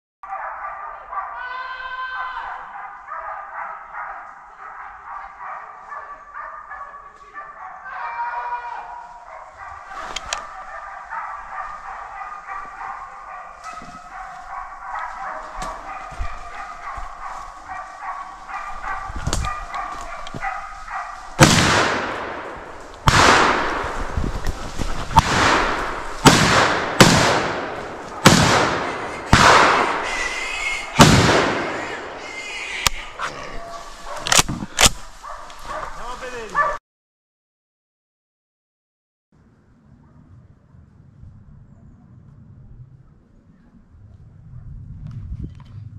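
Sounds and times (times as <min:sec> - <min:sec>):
hunting dogs baying: 0:02.2 - 0:08.2, 0:08.8 - 0:23.0, 0:24.5 - 0:36.8
loud shotgun shots echoing: 0:21.4 - 0:24.2, 0:25.2 - 0:32.3.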